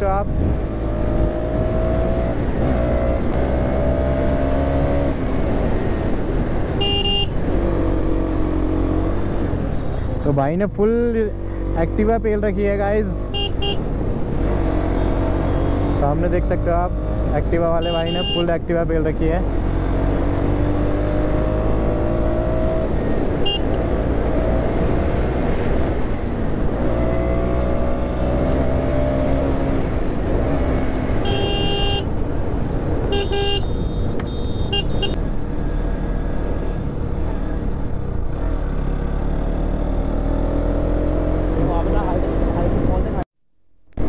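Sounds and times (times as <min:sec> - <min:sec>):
motorcycle engine accelerating: 0:00.0 - 0:06.7, 0:19.4 - 0:31.2, 0:34.9 - 0:42.9
motorcycle horn toots: 0:06.8 - 0:07.4, 0:13.3 - 0:13.8, 0:17.8 - 0:18.5, 0:23.4 - 0:23.8, 0:31.2 - 0:32.1, 0:33.1 - 0:35.2.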